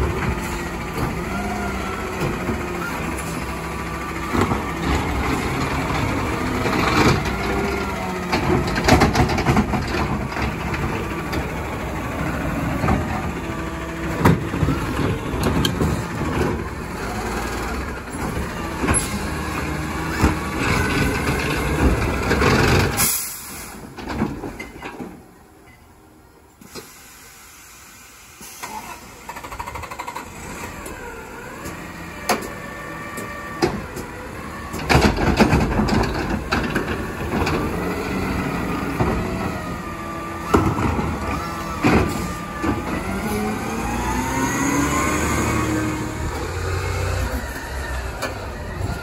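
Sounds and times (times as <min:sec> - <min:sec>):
refuse truck engine and hydraulics: 0:00.0 - 0:49.0
air brake hiss: 0:23.0 - 0:23.8, 0:26.6 - 0:29.2
metal clanks and knocks: 0:34.7 - 0:38.0.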